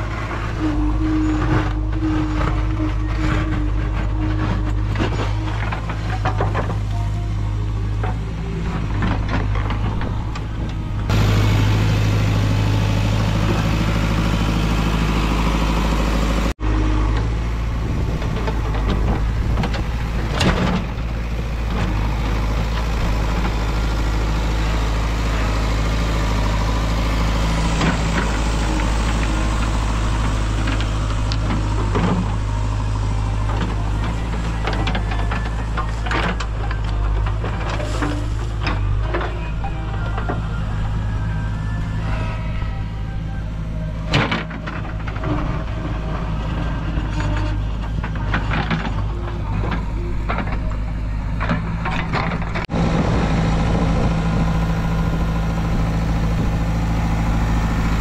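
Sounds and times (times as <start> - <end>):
backhoe clunks: 0.0 - 41.2, 42.8 - 58.0
diesel engine running: 0.0 - 58.0.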